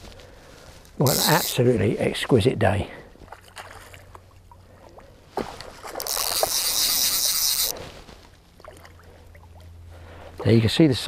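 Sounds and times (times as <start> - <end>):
water splashing and sloshing: 2.9 - 10.3.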